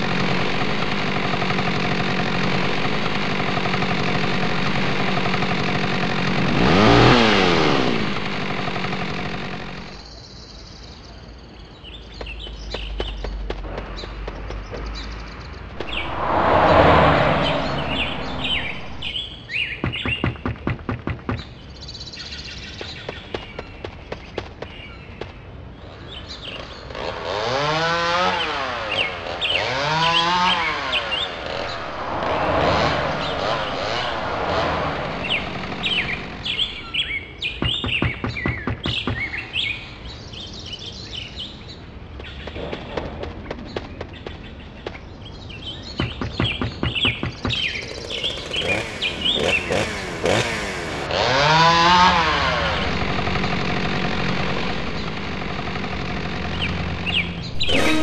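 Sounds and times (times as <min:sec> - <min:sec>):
birds chirping: 0:10.0 - 0:20.5, 0:30.9 - 0:50.4, 0:56.4 - 0:58.0
passing car: 0:15.7 - 0:19.4, 0:30.5 - 0:37.1.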